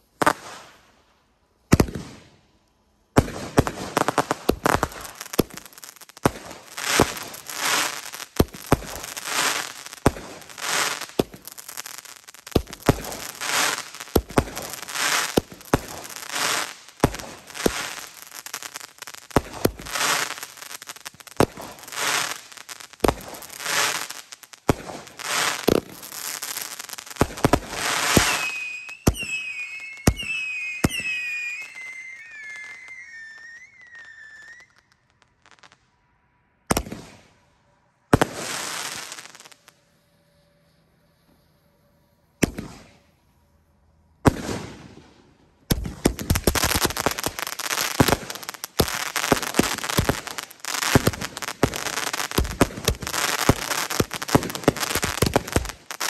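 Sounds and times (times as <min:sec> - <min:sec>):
firework bangs with crackling bursts: 0:00.0 - 0:01.0, 0:01.6 - 0:35.8, 0:36.7 - 0:37.4, 0:38.1 - 0:39.8, 0:42.4 - 0:43.0, 0:44.2 - 0:56.0
firework whistling chirps: 0:03.5 - 0:35.8, 0:46.5 - 0:56.0.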